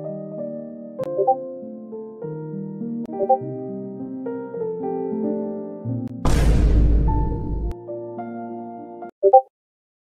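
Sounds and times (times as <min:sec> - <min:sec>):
light piano melody: 0:00.0 - 0:06.2.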